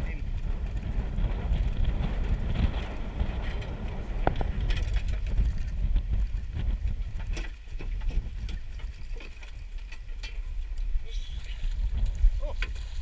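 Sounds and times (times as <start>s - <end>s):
choppy water around boat: 0.0s - 13.0s
wind buffeting microphone: 0.0s - 13.0s.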